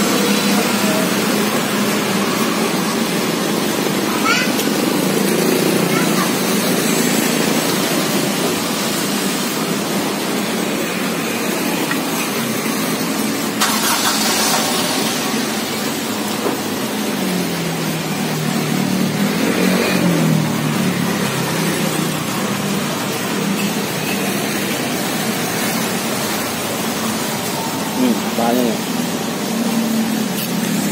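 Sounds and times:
road traffic: 0.0s - 30.9s
engine note rising and falling: 12.6s - 30.9s.

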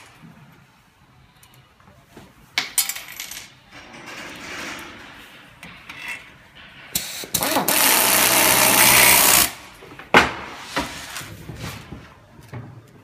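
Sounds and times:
drill driving a screw: 7.4s - 9.6s.

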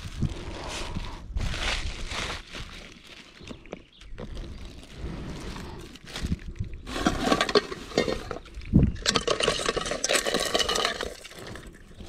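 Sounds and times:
crab shells clinking on metal pot: 7.3s - 11.4s.

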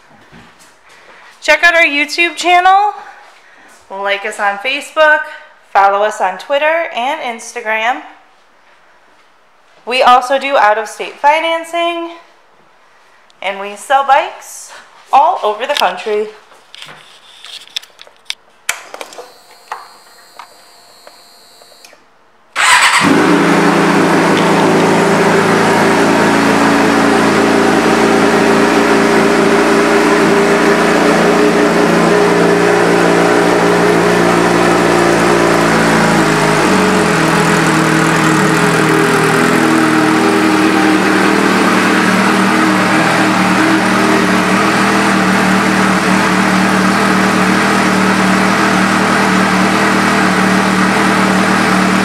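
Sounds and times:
motorcycle engine starting and idling: 22.6s - 52.0s.

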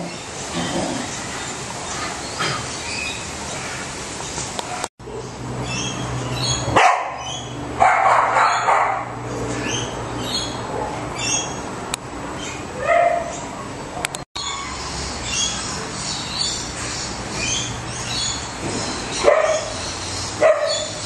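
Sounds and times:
dog barking: 6.8s - 7.2s, 7.8s - 9.2s, 12.8s - 13.3s, 19.2s - 19.8s, 20.4s - 21.0s.

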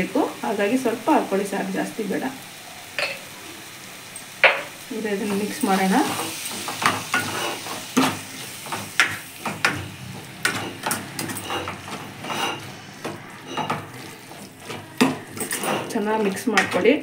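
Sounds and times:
ladle scraping and knocking pan: 4.4s - 17.0s.

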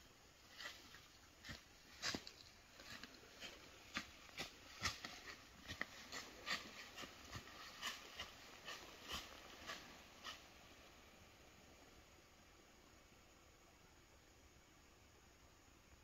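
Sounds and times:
rustles: 0.0s - 12.0s.

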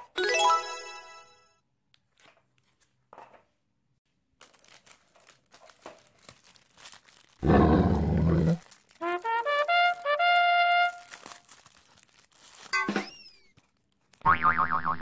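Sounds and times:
plastic wrapper crinkling: 4.1s - 14.2s
roar sound effect: 7.4s - 8.6s.

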